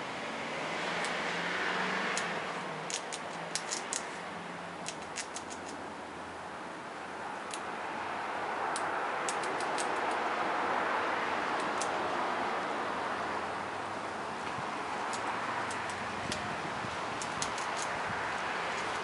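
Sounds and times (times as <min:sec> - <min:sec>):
steady background hiss: 0:00.0 - 0:19.0
squirrel chewing with sharp clicks: 0:02.1 - 0:05.8, 0:08.7 - 0:10.3, 0:11.5 - 0:12.0, 0:14.4 - 0:19.0.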